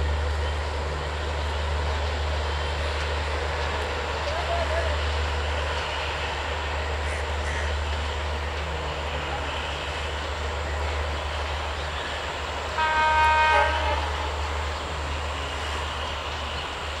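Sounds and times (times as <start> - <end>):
passing train rumble: 0.0 - 17.0
train horn blast: 12.6 - 15.2.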